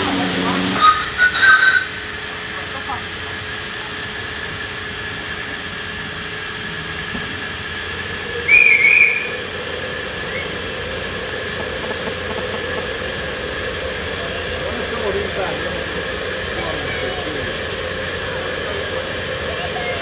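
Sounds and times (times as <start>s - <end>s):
high steam whistle: 0.0s - 3.2s, 7.6s - 20.0s
steam locomotive hissing: 0.0s - 20.0s.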